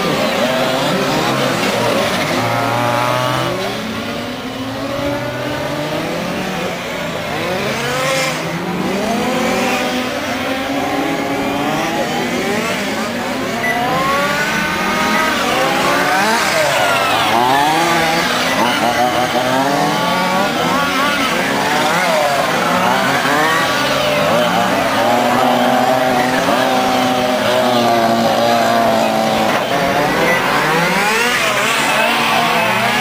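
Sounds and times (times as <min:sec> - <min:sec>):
small racing car engines revving: 0:00.0 - 0:33.0.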